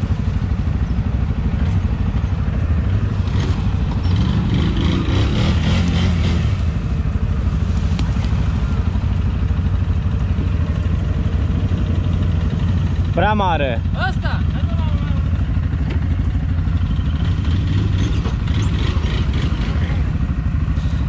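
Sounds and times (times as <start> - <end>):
atv engine idling: 0.0 - 21.0
atv engine revving past: 3.2 - 6.9, 17.0 - 21.0.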